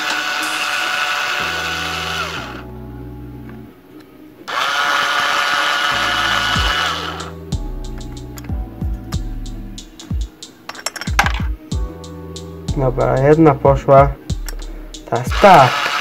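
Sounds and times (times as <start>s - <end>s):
cordless drill motor whining: 0.0s - 2.6s, 4.5s - 7.3s, 15.3s - 16.0s
background music with a beat: 0.0s - 3.6s, 5.4s - 15.7s.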